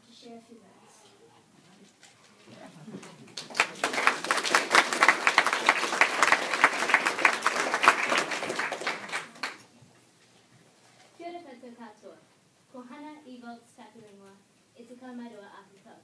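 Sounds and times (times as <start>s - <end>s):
audience applauding: 2.5s - 9.7s.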